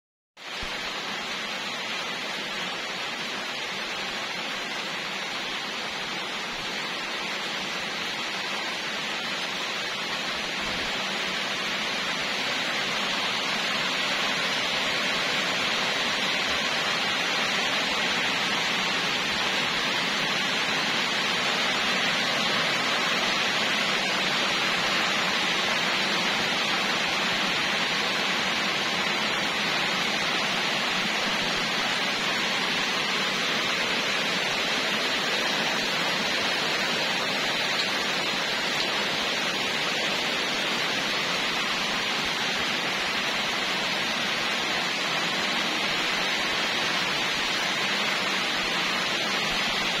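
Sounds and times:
steady rain falling: 0:00.4 - 0:50.0.

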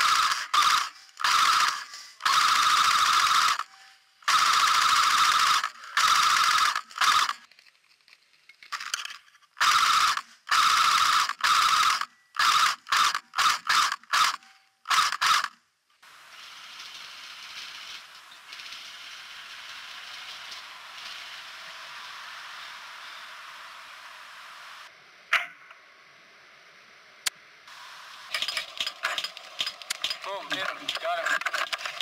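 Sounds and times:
airsoft gun firing bursts: 0:00.0 - 0:03.7, 0:04.3 - 0:07.4
steady hiss: 0:27.6 - 0:28.8.

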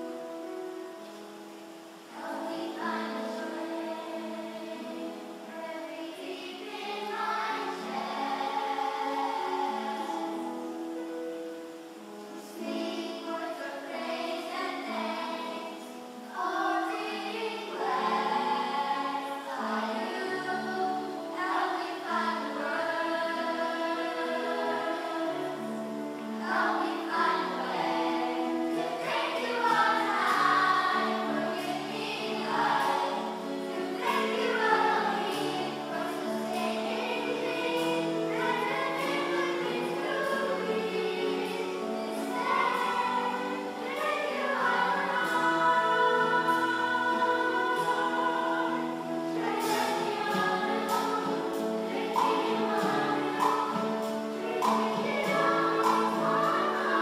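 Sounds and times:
children's choir singing: 0:00.0 - 0:57.0
acoustic guitar: 0:19.7 - 0:57.0.

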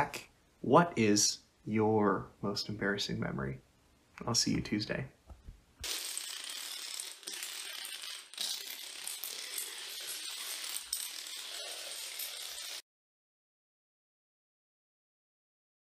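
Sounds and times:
dominoes toppling: 0:05.8 - 0:12.8.

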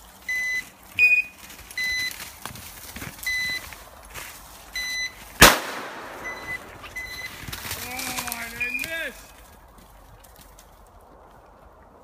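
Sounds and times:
short electronic beeps: 0:00.3 - 0:02.2, 0:03.2 - 0:03.7, 0:04.8 - 0:05.2, 0:06.2 - 0:07.4, 0:08.6 - 0:08.9
shotgun shot: 0:05.4 - 0:06.6.

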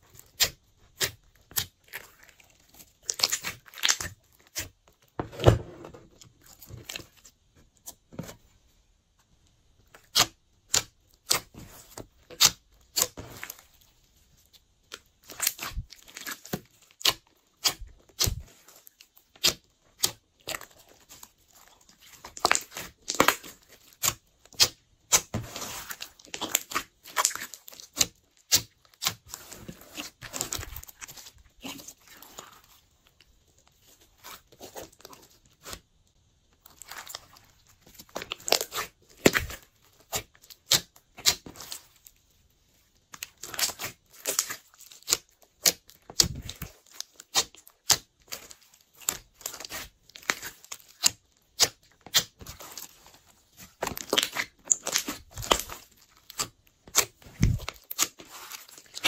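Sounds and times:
slime squelching with sticky pops: 0:00.1 - 0:04.8, 0:14.9 - 0:42.0, 0:43.1 - 0:59.0.

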